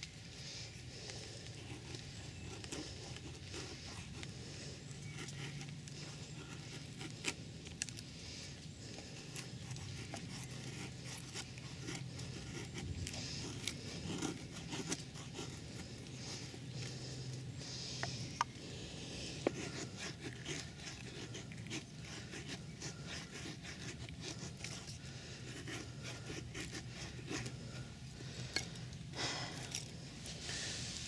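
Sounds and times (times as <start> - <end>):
knife scraping wooden stick: 0.0 - 29.0, 29.6 - 31.0.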